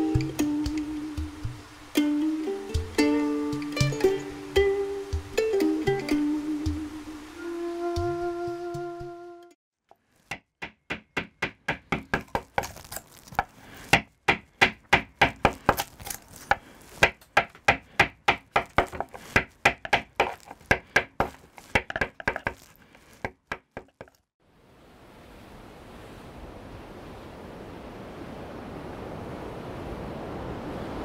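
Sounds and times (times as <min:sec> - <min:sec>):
chisel knocking into wood block: 0:10.3 - 0:12.6, 0:13.9 - 0:15.8, 0:17.0 - 0:22.6.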